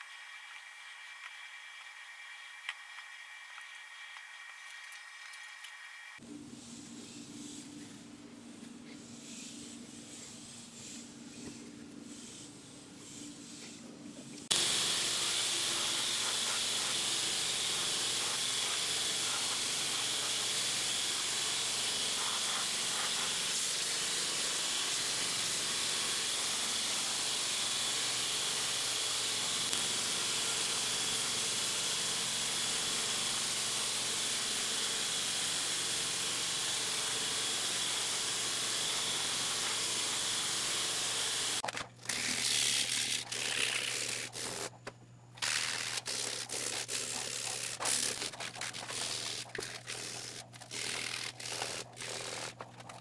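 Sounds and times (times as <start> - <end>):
belt grinder grinding: 14.5 - 44.8, 45.4 - 53.0.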